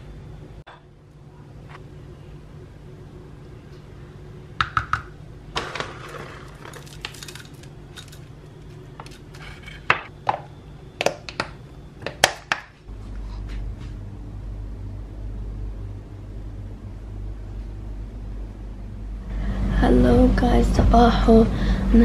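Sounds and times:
metal spoon scraping glass container: 9.0s - 9.9s.

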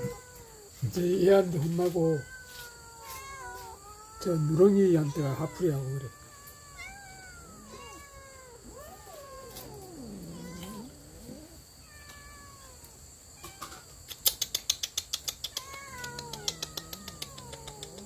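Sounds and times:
cats yowling: 0.0s - 14.0s, 15.3s - 18.0s
sharp clicks: 14.1s - 18.0s.

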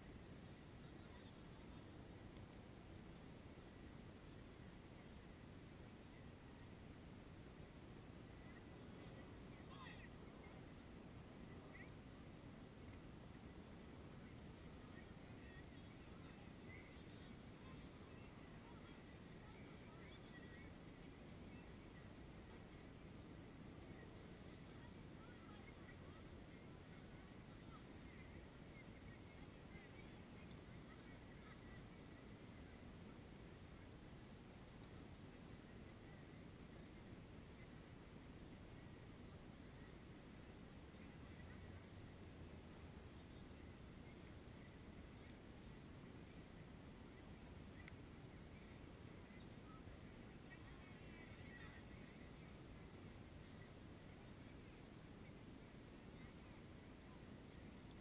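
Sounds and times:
faint distant high calls: 0.0s - 58.0s
faint low rumble: 0.0s - 58.0s
faint click: 2.3s - 2.6s, 12.8s - 13.1s, 30.4s - 30.6s, 47.7s - 48.1s.

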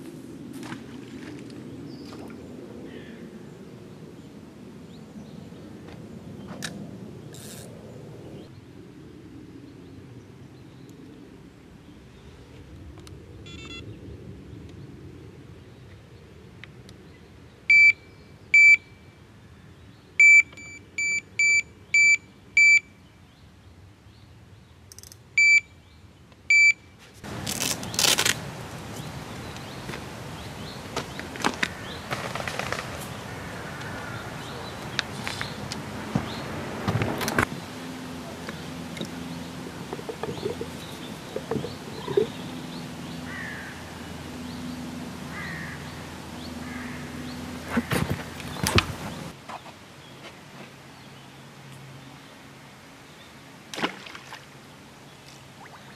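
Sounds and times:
bite alarm beeps: 13.5s - 13.8s, 17.7s - 18.0s, 18.6s - 18.9s, 20.2s - 22.9s, 25.4s - 25.7s, 26.5s - 26.8s
loud rushing rustling noise: 30.9s - 33.3s.

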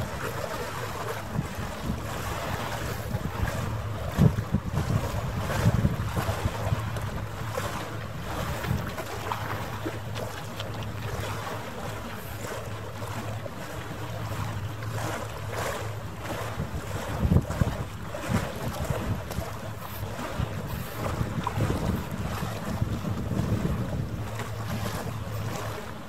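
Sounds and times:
boat engine humming: 0.0s - 26.0s
water washing: 0.0s - 26.0s
wind buffeting microphone: 0.0s - 26.0s.

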